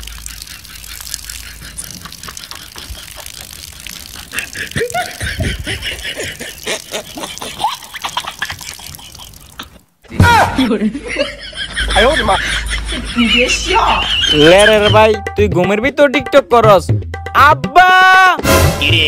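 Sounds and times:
people laughing: 0:04.1 - 0:09.6, 0:10.6 - 0:15.0.

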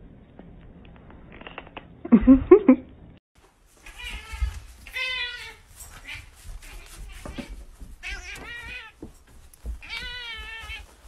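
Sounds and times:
cat meowing: 0:03.8 - 0:07.3, 0:09.8 - 0:10.9.

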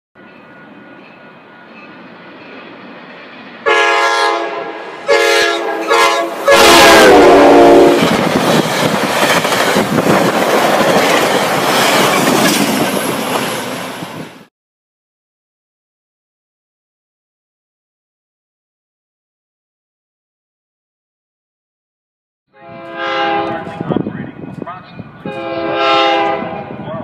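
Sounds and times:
train cars rushing past: 0:00.2 - 0:14.5, 0:22.7 - 0:27.0
train air horn blasts: 0:03.6 - 0:08.2, 0:22.5 - 0:23.9, 0:25.2 - 0:26.8.

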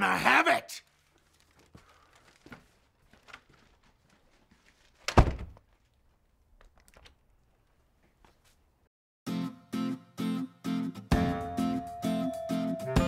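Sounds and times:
door slamming: 0:05.1 - 0:05.6.

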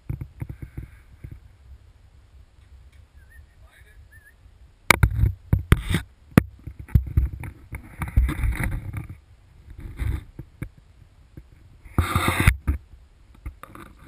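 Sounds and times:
rustling rubs against camera housing: 0:05.0 - 0:10.7, 0:11.4 - 0:12.8.

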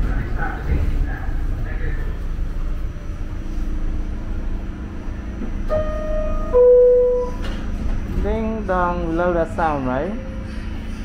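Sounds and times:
low rumble of train: 0:00.0 - 0:11.0
two-note door chime: 0:05.7 - 0:07.5.

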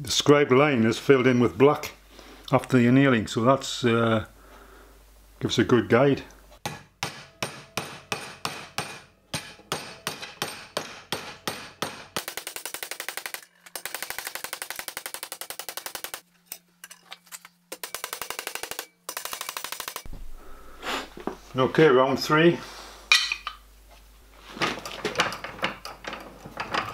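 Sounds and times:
mallet hammering copper sheet: 0:06.6 - 0:13.4.

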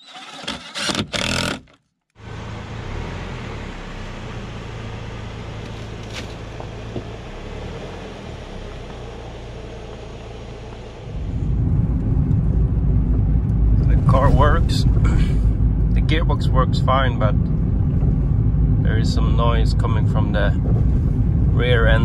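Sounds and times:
car engine idling: 0:02.2 - 0:22.0
road noise inside moving car: 0:02.2 - 0:22.0.

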